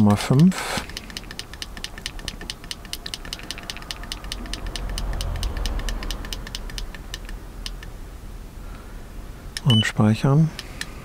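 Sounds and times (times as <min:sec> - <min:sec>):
low rumble: 0:02.8 - 0:09.6.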